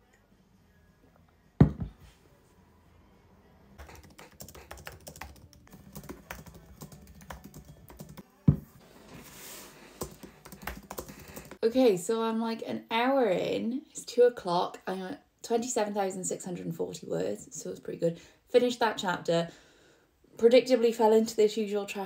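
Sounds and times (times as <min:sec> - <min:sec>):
mug knocking on desk: 0:01.6 - 0:02.0, 0:08.5 - 0:08.7
fast typing on keyboard: 0:03.8 - 0:08.2, 0:10.0 - 0:11.6.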